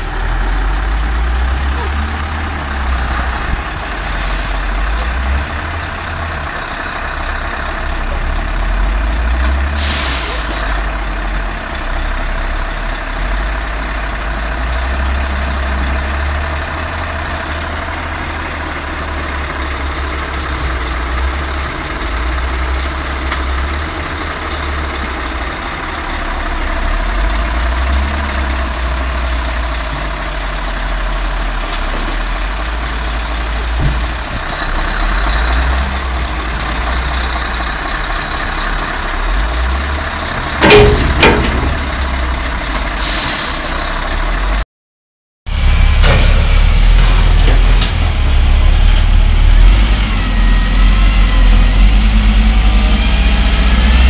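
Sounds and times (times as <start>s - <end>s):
diesel truck engine rumbling: 0.0s - 44.6s, 45.5s - 54.0s
air brake hiss: 4.2s - 4.6s, 9.8s - 10.8s, 43.0s - 43.8s.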